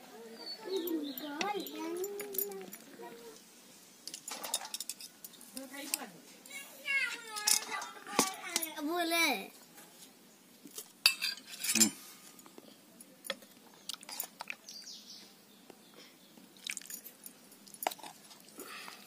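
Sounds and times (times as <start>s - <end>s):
steel spoon clinking on plates: 11.1s - 12.0s.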